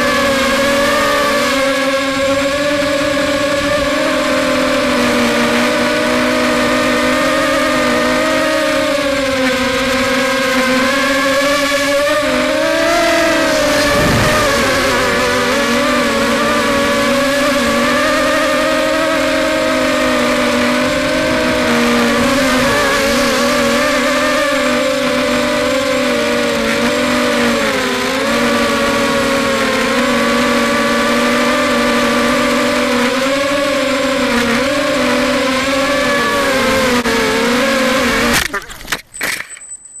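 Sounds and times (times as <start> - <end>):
drone motors whining buzz: 0.0 - 39.4
wind rushing: 13.1 - 16.2
drone crashing into grass: 13.4 - 15.5.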